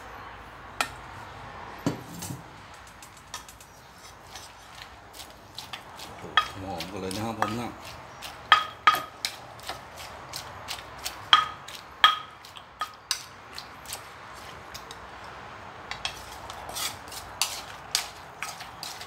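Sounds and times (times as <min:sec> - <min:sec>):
pestle pounding in clay mortar: 0:04.2 - 0:14.5, 0:16.0 - 0:19.0.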